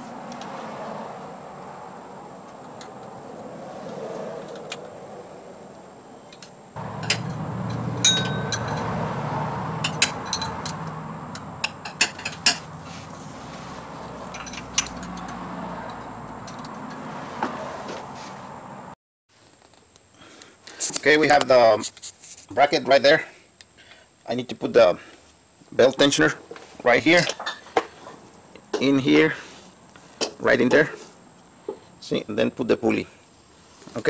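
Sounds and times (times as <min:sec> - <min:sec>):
low hum: 0:06.8 - 0:17.0
wrench and bolts clinking on metal: 0:06.9 - 0:08.9, 0:09.8 - 0:12.7, 0:14.2 - 0:17.0.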